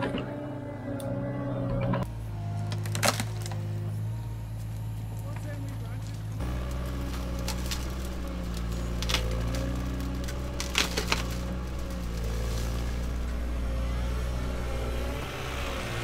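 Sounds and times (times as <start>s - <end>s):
excavator engine running: 0.0s - 16.0s
splintering wood cracks: 2.6s - 3.6s, 6.1s - 13.5s
tree shear snapping branches: 2.6s - 3.6s, 6.5s - 13.5s.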